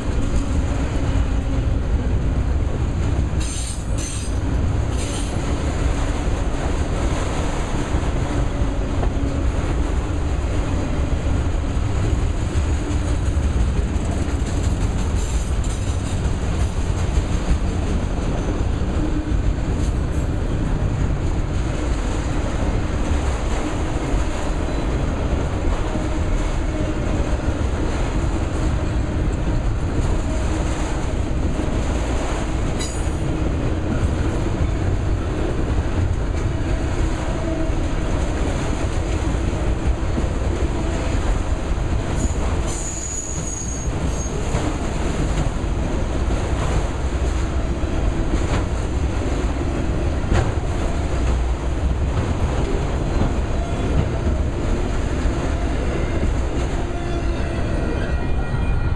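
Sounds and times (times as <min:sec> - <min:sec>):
freight train wheels rumbling: 0:00.0 - 0:58.9
wheels clickety-clack: 0:08.8 - 0:55.4.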